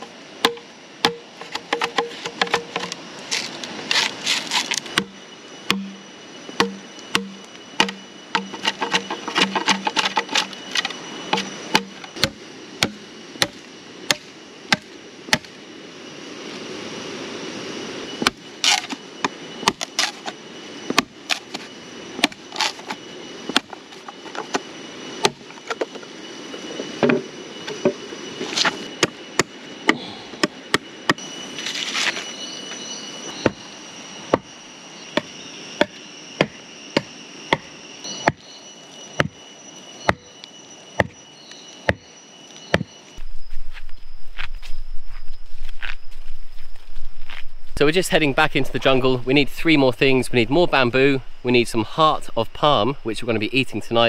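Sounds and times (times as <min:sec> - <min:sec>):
high insect whine: 0:00.0 - 0:54.0
blade chopping wood: 0:00.4 - 0:06.0, 0:06.6 - 0:15.5, 0:22.2 - 0:24.6.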